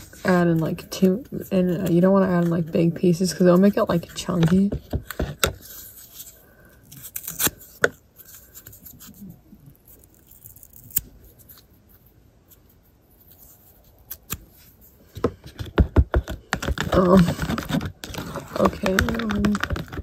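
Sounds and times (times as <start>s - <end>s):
cardboard ripping: 6.9s - 7.8s, 16.5s - 20.0s.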